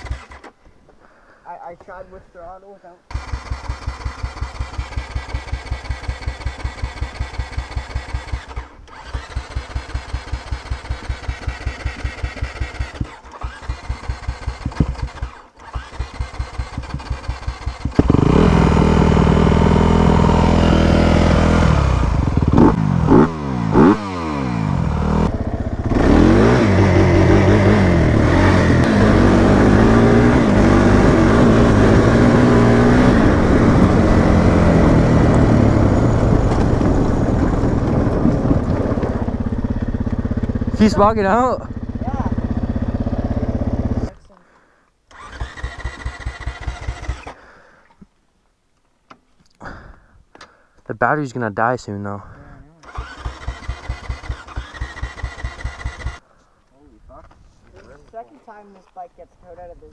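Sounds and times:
motorcycle electric starter cranking: 0.0s - 0.6s, 3.1s - 18.8s, 45.1s - 47.4s, 52.8s - 56.3s
motorcycle engine revving: 0.0s - 0.6s, 3.1s - 44.2s, 45.1s - 47.4s, 52.8s - 56.3s.

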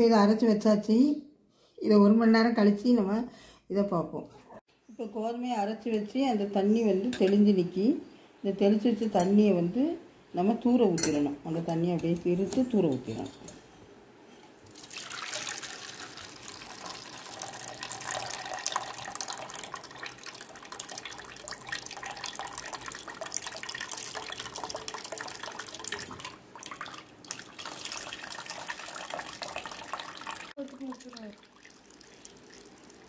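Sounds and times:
water pouring into metal bowl: 14.6s - 33.0s.

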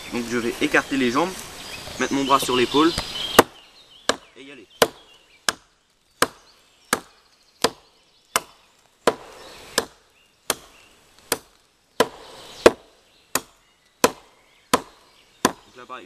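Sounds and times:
hatchet chopping into log: 3.0s - 15.7s.

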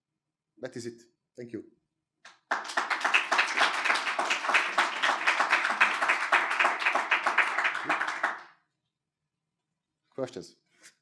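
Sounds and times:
audience applauding: 2.3s - 8.6s.

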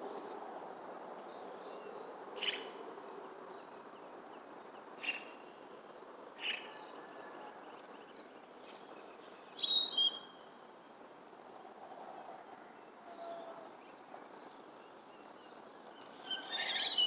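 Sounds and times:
steady background noise: 0.0s - 17.0s
bird calls: 2.4s - 2.7s, 6.4s - 7.4s, 8.6s - 10.4s, 14.8s - 17.0s
bird chirps: 2.4s - 2.7s, 6.4s - 6.9s, 9.0s - 10.4s, 14.8s - 17.0s.

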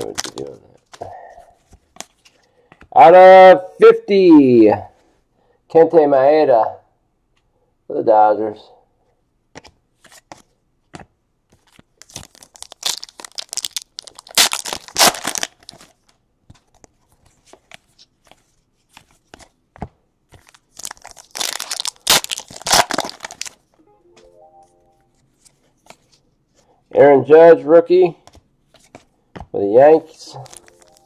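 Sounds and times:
cards rustling and scraping: 0.0s - 2.9s, 9.5s - 23.6s, 25.1s - 26.8s, 28.2s - 31.0s.

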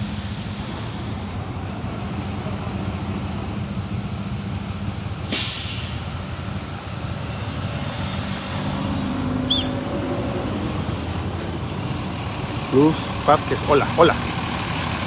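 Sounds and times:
vehicle engines running: 0.0s - 15.0s
loud hiss of air: 5.2s - 6.2s
car driving past: 7.4s - 12.2s.

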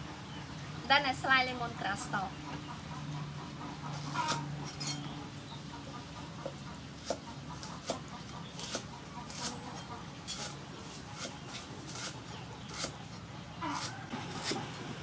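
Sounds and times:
cleaver chopping on wooden board: 7.0s - 8.0s, 10.3s - 13.0s.

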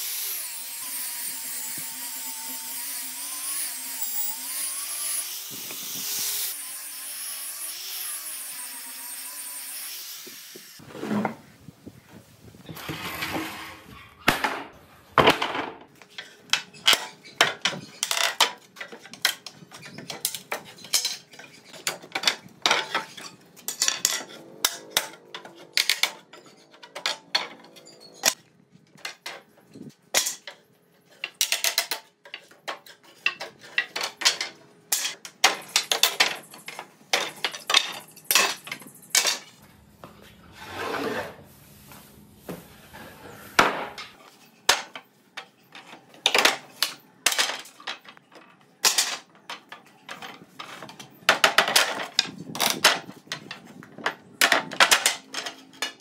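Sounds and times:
wooden pallets knocking and clattering: 12.8s - 15.9s, 48.8s - 56.0s.

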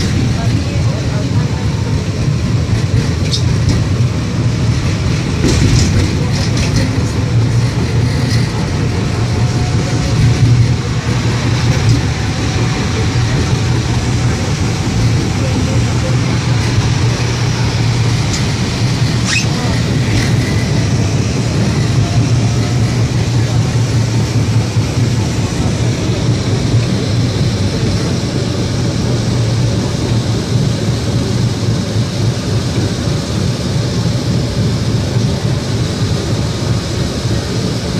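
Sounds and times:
tram rumbling on rails: 0.0s - 37.9s.

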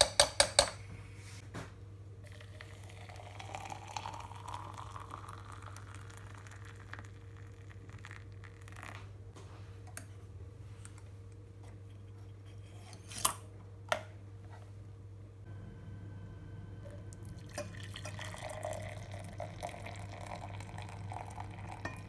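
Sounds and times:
steady low hum: 0.0s - 22.0s
hot water pouring into glass: 2.3s - 9.0s, 16.9s - 22.0s.

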